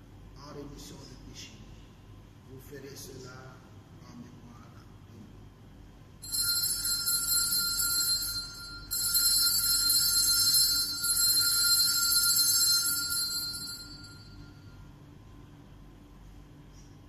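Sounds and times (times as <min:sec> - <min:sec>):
altar bells ringing: 0:06.2 - 0:14.8.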